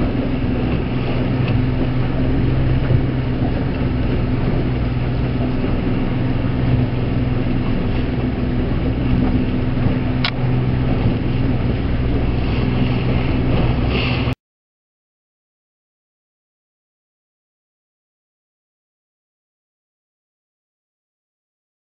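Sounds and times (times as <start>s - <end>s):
boat engine droning: 0.0s - 14.4s.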